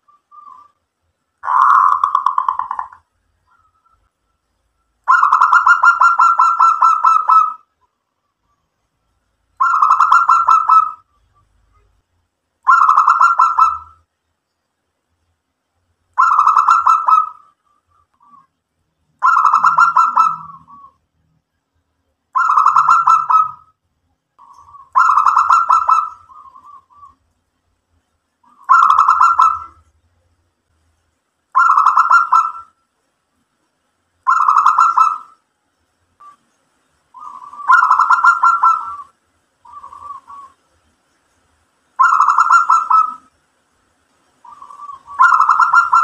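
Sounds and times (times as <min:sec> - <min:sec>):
dove cooing: 0:01.4 - 0:04.0, 0:05.1 - 0:07.7, 0:09.6 - 0:11.6, 0:12.7 - 0:14.0, 0:16.2 - 0:17.6, 0:19.2 - 0:21.0, 0:22.4 - 0:23.7, 0:24.4 - 0:27.2, 0:28.4 - 0:29.8, 0:31.6 - 0:32.7, 0:34.3 - 0:35.4, 0:37.2 - 0:40.7, 0:42.0 - 0:43.3, 0:44.4 - 0:46.0.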